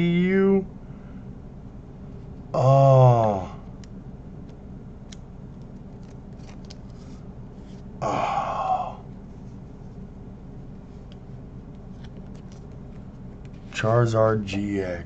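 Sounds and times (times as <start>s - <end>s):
trading cards clicking and rustling: 3.8s - 7.9s, 11.1s - 14.8s
breathy vocal sound: 8.0s - 9.0s.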